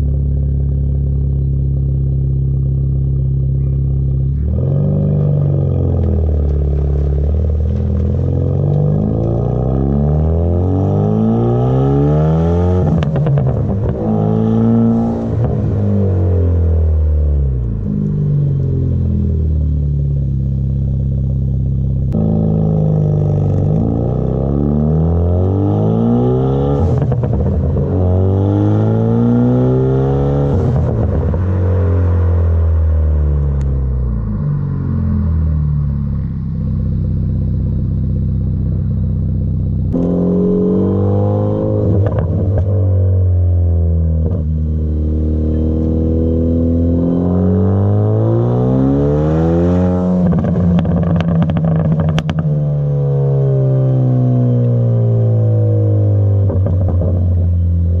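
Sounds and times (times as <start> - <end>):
car engine revving: 0.0 - 58.0
exhaust crackling pops: 5.4 - 9.4, 41.9 - 42.9, 50.2 - 52.6.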